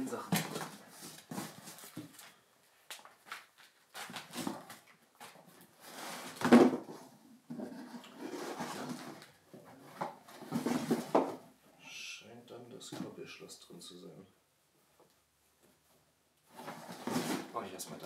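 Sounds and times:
paper wrapping crinkling: 0.4s - 5.7s
items rustling in cardboard box: 7.6s - 9.2s, 16.5s - 17.6s.

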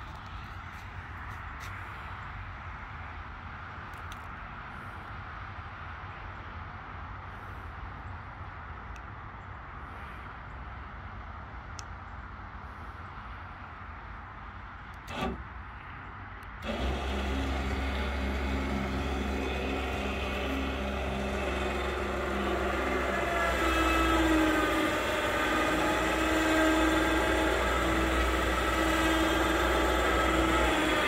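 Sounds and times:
electric winch motor whine: 15.0s - 15.5s, 16.6s - 31.0s.

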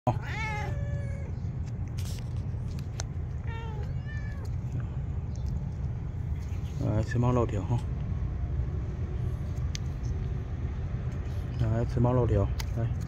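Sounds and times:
cats meowing: 0.1s - 1.7s, 3.1s - 5.0s.

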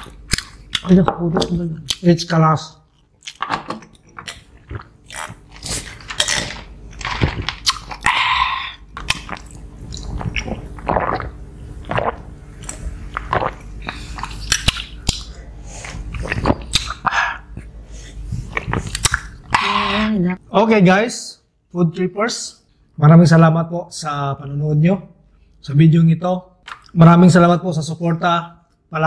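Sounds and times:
people chewing: 2.9s - 20.2s
people gulping and swallowing: 3.3s - 17.8s, 18.4s - 20.4s.

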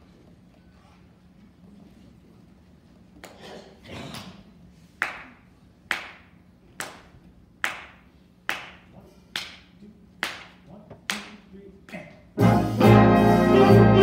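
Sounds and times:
sharp hand claps: 5.0s - 11.4s.

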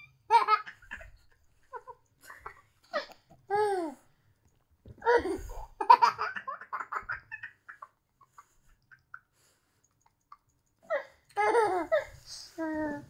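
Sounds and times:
young child giggling: 11.4s - 12.2s.

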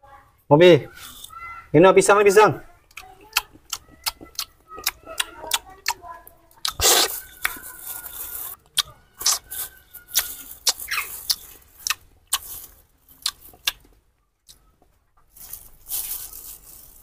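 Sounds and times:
rustling: 6.8s - 8.6s, 9.2s - 14.0s, 14.8s - 17.0s.

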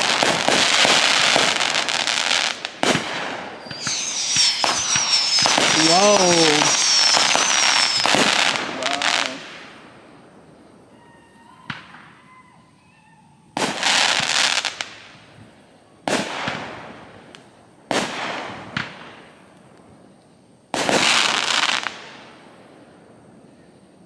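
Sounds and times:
firework bangs: 0.0s - 9.8s
firework crackling: 0.0s - 10.1s.

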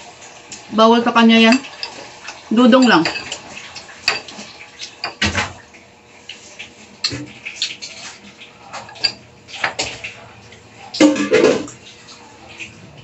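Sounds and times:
metal spoon clinking ceramic bowl: 1.5s - 4.4s, 5.0s - 5.2s, 8.7s - 9.8s.

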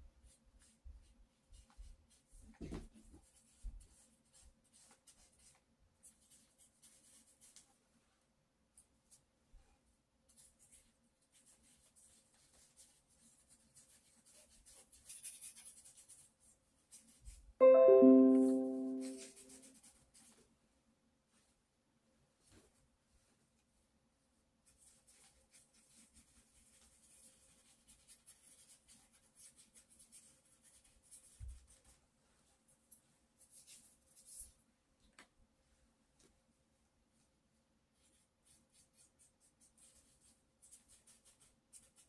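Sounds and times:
paintbrush stroking paper: 10.4s - 17.9s, 24.6s - 32.0s, 38.0s - 42.0s.

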